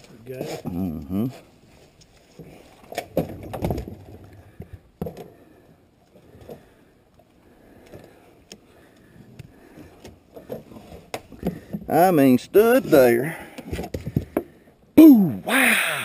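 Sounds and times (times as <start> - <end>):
thumps and knocks on truck bed: 3.1 - 4.1.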